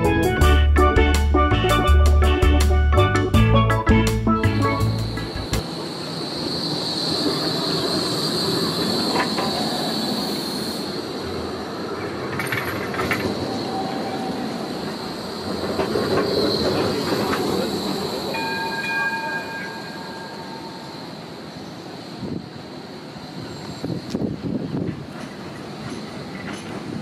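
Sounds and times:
tram running on track: 0.0 - 27.0
high steady squeal: 4.9 - 12.1, 13.2 - 24.4.

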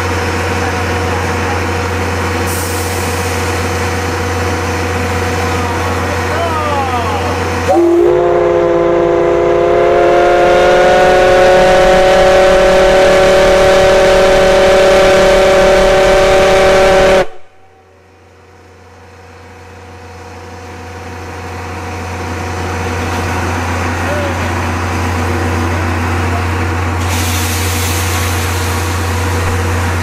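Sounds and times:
steam locomotive whistle blast: 7.2 - 17.9.

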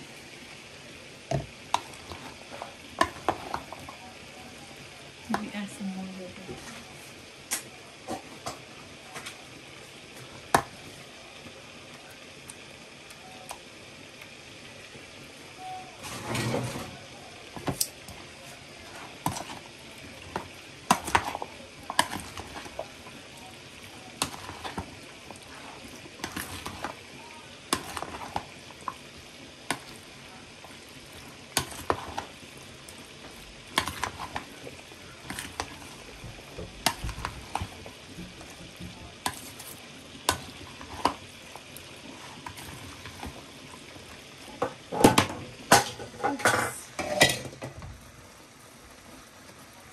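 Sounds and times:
food sizzling: 0.0 - 49.9
spoon stirring and scraping pot: 1.3 - 4.1, 6.4 - 7.2, 16.0 - 23.2, 23.8 - 47.6.

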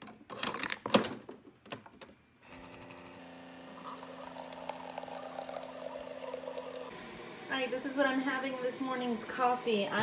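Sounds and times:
pump humming: 2.5 - 7.5
coffee streaming into mug: 3.8 - 6.9.

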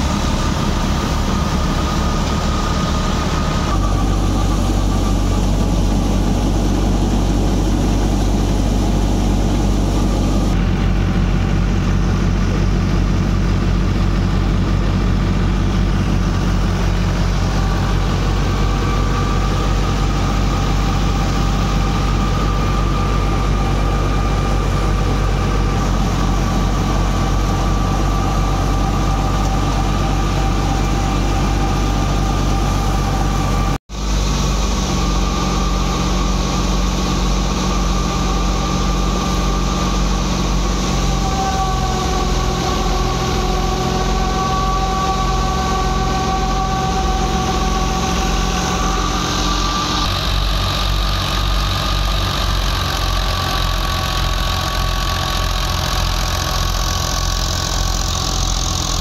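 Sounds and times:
thin steady whine: 0.0 - 59.0
thresher mechanical drone: 0.0 - 59.0.

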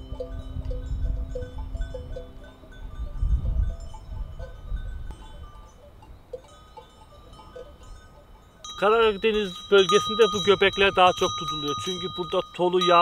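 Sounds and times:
sheep bells clinking: 0.0 - 13.0.

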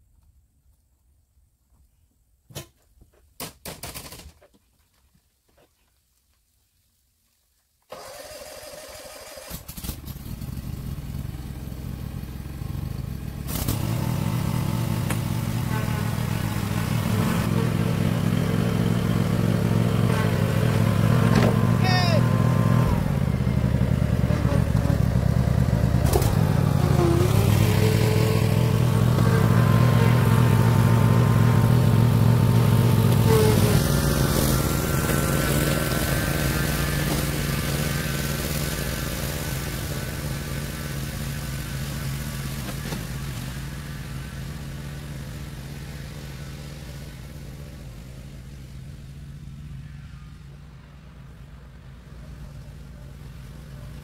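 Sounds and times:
riding mower engine running: 7.9 - 54.0.

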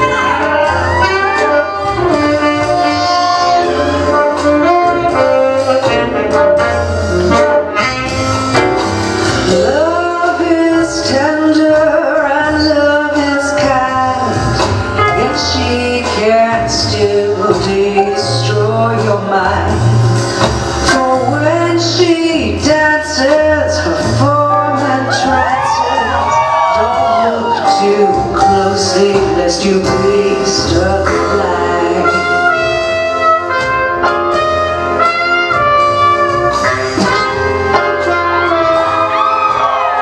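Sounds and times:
instrumental backing with bass: 0.0 - 40.0
person singing: 9.4 - 20.0, 20.8 - 33.1.

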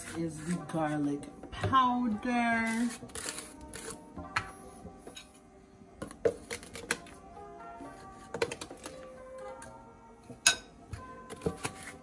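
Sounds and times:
background music: 0.0 - 12.0.

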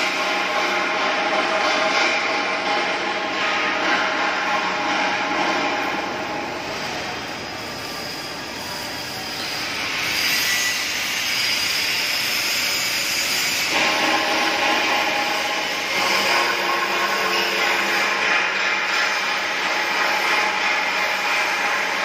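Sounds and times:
workshop machinery noise: 0.0 - 22.0
arc welding crackle: 10.1 - 22.0.

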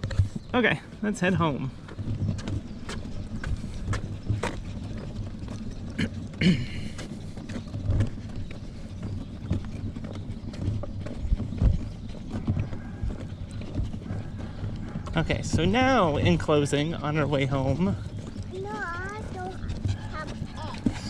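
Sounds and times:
footsteps on concrete: 0.0 - 21.0
stroller wheels rolling: 0.0 - 21.0.

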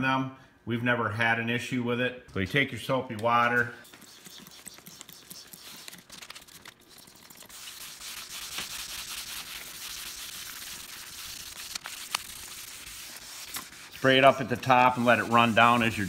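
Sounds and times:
wet sanding hiss: 7.4 - 16.0.

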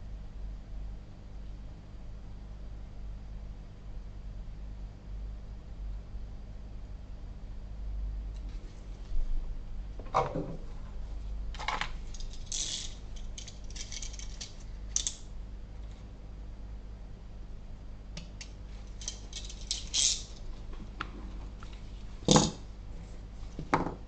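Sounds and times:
steady low hum: 0.0 - 24.0
small metal tools clicking: 12.1 - 15.2, 18.4 - 20.4.

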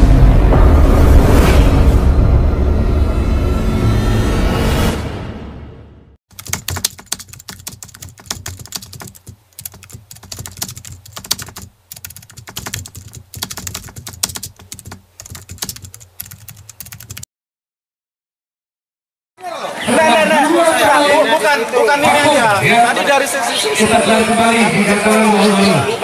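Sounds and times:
keyboard typing clicks: 6.3 - 17.2.

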